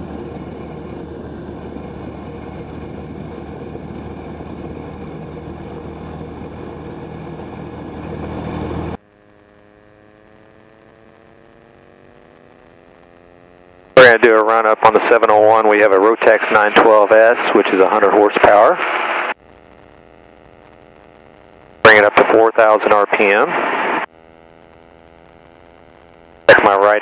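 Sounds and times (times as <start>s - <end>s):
quieter engine hum rising in pitch: 0.0s - 14.0s
aircraft engine and propeller drone: 0.0s - 19.4s, 21.9s - 25.2s, 26.3s - 27.0s.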